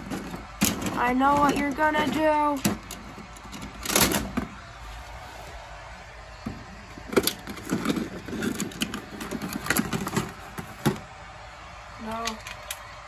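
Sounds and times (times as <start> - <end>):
plastic toys knocking and rustling: 0.0 - 4.6, 6.4 - 11.1, 12.0 - 12.8.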